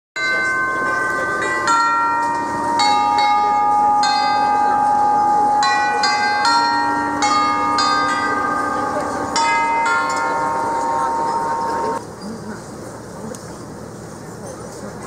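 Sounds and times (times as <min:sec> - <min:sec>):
bells ringing a slow tune: 0:00.2 - 0:12.0
murmur of a crowd: 0:00.2 - 0:15.0.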